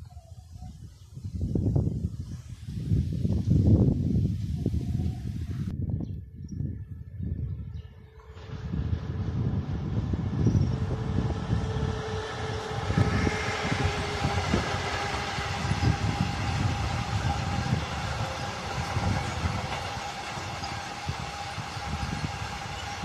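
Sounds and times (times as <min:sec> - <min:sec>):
electric locomotive passing: 0:07.3 - 0:23.0
steady hum: 0:08.2 - 0:23.0
freight wagon wheels thumping on rails: 0:08.3 - 0:23.0.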